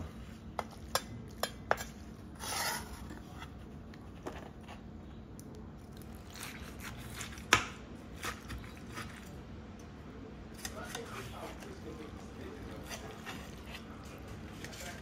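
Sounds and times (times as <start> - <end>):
metal spatula scraping skillet: 1.7 - 3.2.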